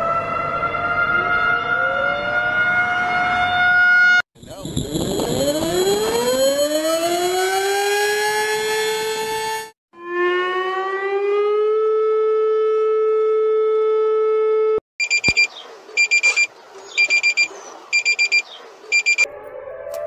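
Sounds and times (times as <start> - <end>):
rising siren tone: 0.0 - 14.8, 18.9 - 20.0
rapid high electronic beeps: 15.0 - 19.3.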